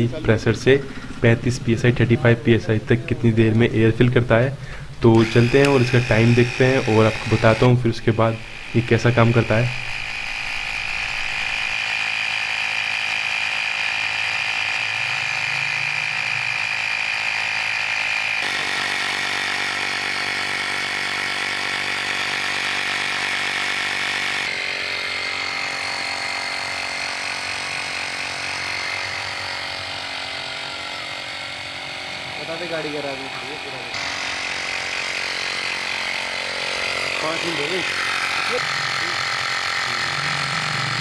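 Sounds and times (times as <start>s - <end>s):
air compressor buzzing whine: 0.0s - 41.0s.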